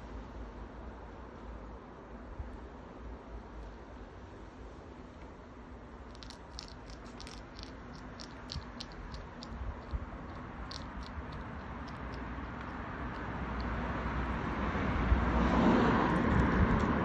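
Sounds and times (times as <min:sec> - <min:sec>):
hedgehog crunching kibble: 0:06.0 - 0:17.0.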